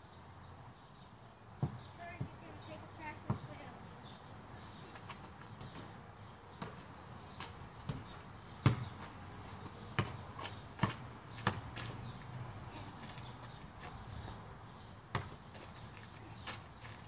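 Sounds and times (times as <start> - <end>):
basketball bouncing thuds: 1.6 - 3.6, 5.5 - 12.0, 15.1 - 15.7.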